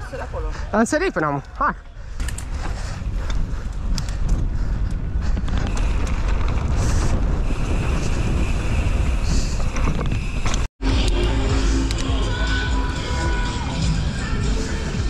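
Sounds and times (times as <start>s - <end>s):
tyres rumbling on trail: 0.0s - 15.0s
bike clicks and rattles: 1.3s - 12.2s
wind buffeting microphone: 1.8s - 10.7s.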